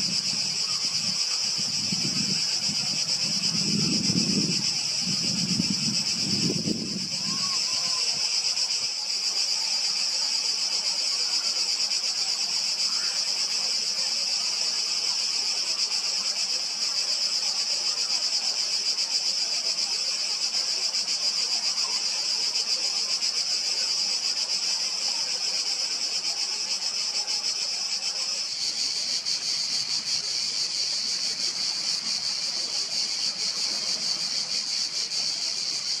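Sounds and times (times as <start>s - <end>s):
insects shrilling: 24.3s - 36.0s.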